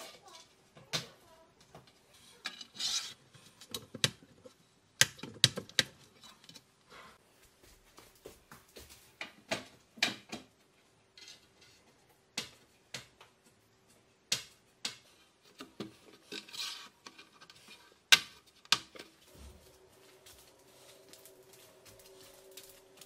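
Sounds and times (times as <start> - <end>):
scraping rub: 2.1 - 3.8, 15.9 - 18.1.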